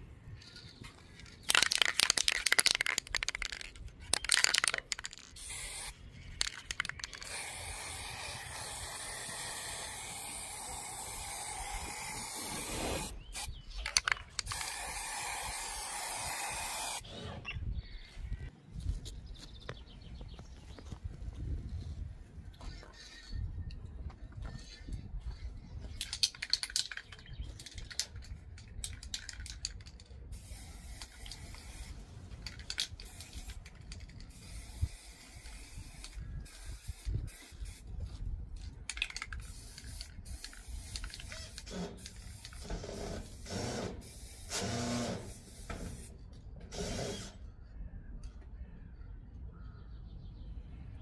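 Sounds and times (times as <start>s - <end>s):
spray can hissing: 1.5s - 13.5s, 14.4s - 17.0s, 30.3s - 37.8s, 39.2s - 46.1s
sharp clicks: 13.4s - 14.9s.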